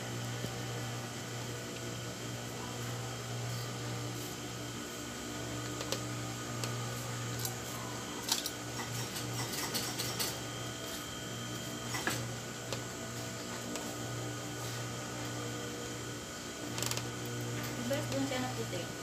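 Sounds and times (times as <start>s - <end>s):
sewing machine motor humming: 5.5s - 19.0s.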